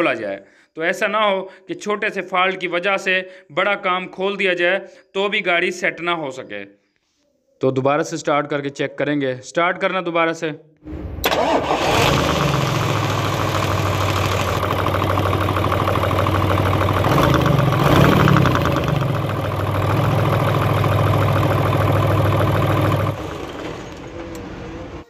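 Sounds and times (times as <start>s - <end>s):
diesel engine running: 11.3s - 25.0s.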